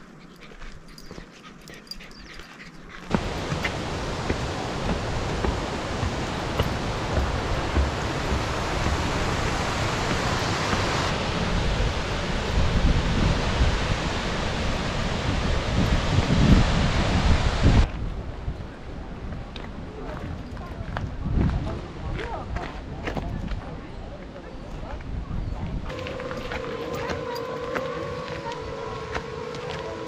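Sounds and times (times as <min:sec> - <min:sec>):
waterfall rushing: 0:03.1 - 0:17.9, 0:25.9 - 0:30.0
wind buffeting microphone: 0:03.1 - 0:24.1, 0:24.7 - 0:30.0.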